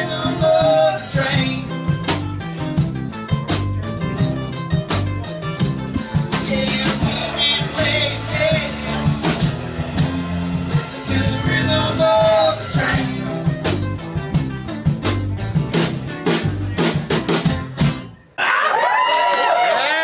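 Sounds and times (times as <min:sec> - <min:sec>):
person singing: 0:00.0 - 0:02.0, 0:06.1 - 0:09.6, 0:10.8 - 0:13.7
strummed acoustic guitars: 0:00.0 - 0:18.2
drum kit: 0:00.0 - 0:18.3
electric bass: 0:00.0 - 0:18.3.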